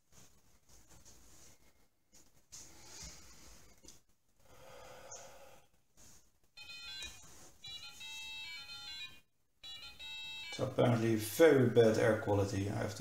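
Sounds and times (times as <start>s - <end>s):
soft exhale: 4.4s - 5.7s.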